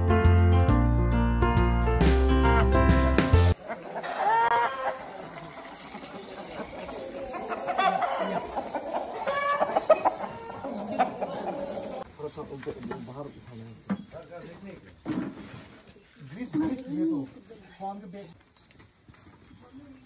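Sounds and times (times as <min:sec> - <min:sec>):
chickens calling: 0:02.4 - 0:12.1.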